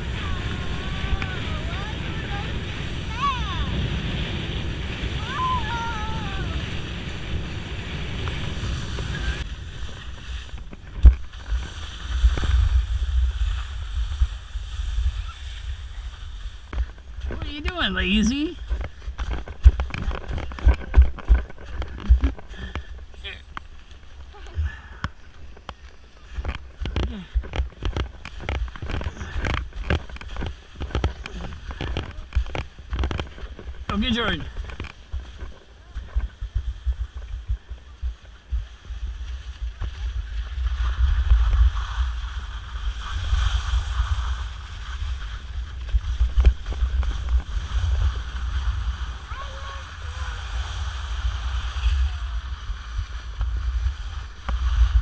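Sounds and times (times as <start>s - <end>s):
wind buffeting microphone: 0.0s - 23.3s, 24.0s - 55.0s
skis scraping over snow: 0.0s - 55.0s.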